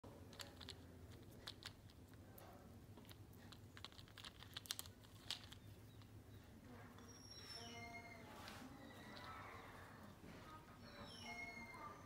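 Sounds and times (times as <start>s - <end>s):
plastic toys clicking and tapping: 0.1s - 6.2s.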